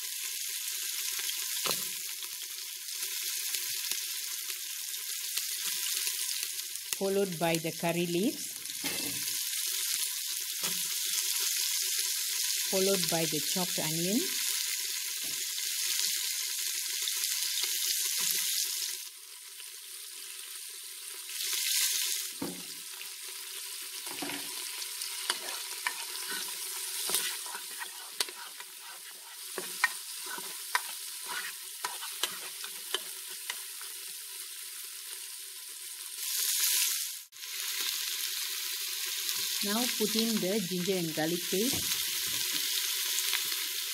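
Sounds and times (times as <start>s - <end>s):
onion sizzling in hot oil: 0.0s - 43.9s
spatula scraping a pot: 25.2s - 33.1s.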